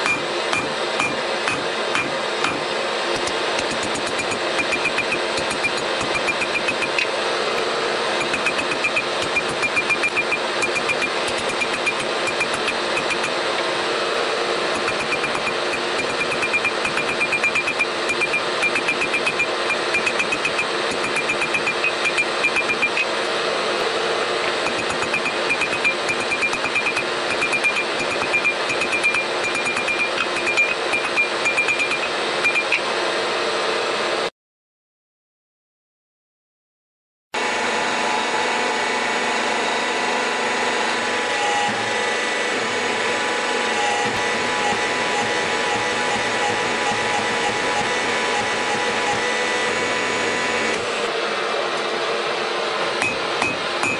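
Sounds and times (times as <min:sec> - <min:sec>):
steady hum: 0:00.0 - 0:32.7, 0:40.9 - 0:51.3.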